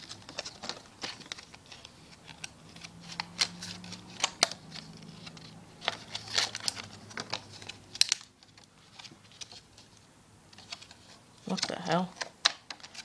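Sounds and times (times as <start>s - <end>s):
wrapping snapping: 0.0s - 9.6s
wrapping crinkling: 0.0s - 13.0s.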